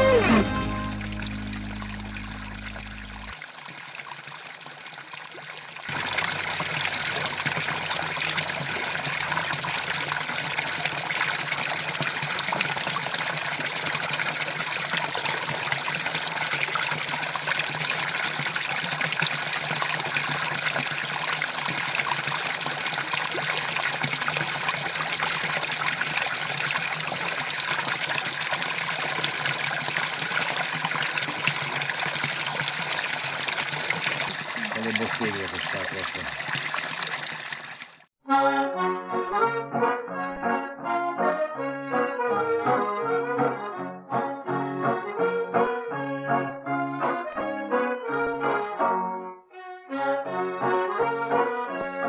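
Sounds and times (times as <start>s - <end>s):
water splashing into pool: 0.0s - 38.1s.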